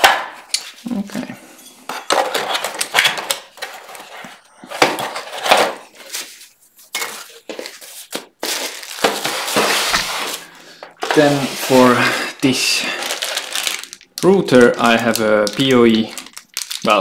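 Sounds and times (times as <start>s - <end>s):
packaging rustling and knocking: 6.9s - 17.0s.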